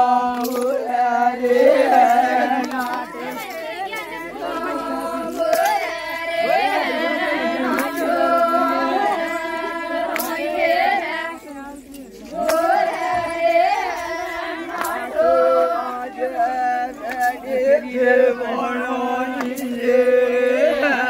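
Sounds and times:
women singing folk song: 0:00.0 - 0:21.0.

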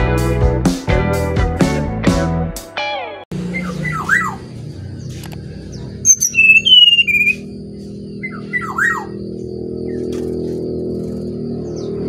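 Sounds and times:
background music: 0:00.0 - 0:03.2
bird singing whistled notes: 0:03.5 - 0:07.6, 0:08.2 - 0:10.1
bird chirps: 0:03.5 - 0:12.0.

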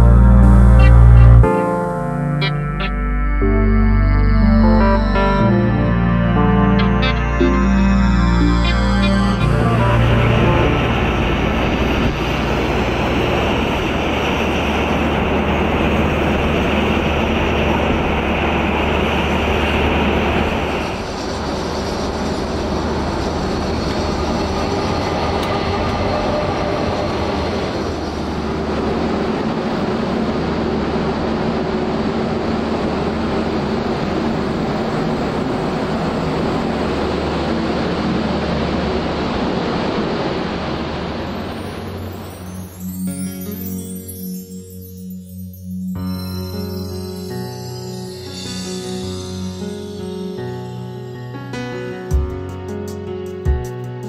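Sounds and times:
train rumbling on track: 0:08.5 - 0:42.9
high hiss: 0:35.6 - 0:52.0.

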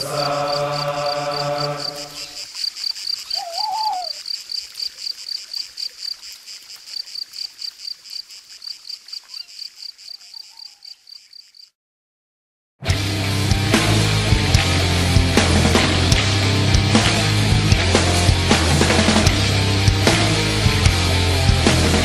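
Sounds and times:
high-pitched rhythmic chirping: 0:00.0 - 0:04.3
short wavering whistle: 0:03.4 - 0:04.2.

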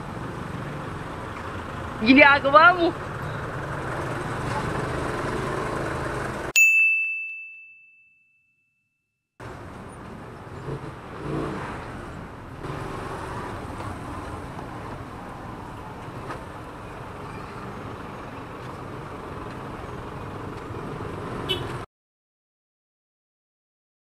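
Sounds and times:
car traffic: 0:00.0 - 0:06.6, 0:09.4 - 0:21.9
motorcycle engine riding slowly: 0:12.6 - 0:21.0.

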